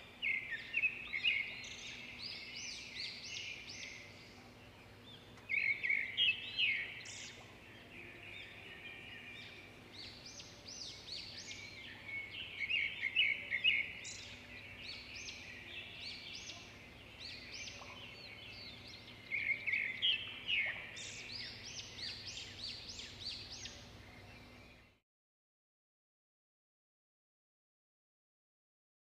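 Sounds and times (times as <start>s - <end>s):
birds chirping and calling: 0.0s - 24.9s.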